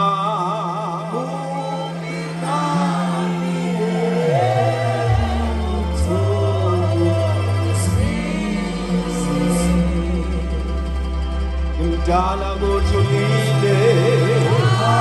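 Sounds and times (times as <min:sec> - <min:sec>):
solo voice singing: 0:00.0 - 0:10.8, 0:11.8 - 0:15.0
sustained low chords: 0:00.0 - 0:15.0.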